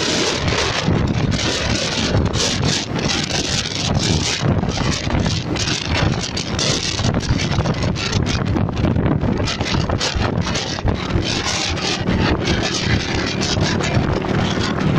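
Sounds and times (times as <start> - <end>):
motorcycle engine: 0.0 - 14.9
road noise: 0.0 - 14.9
wind buffeting microphone: 0.0 - 14.9.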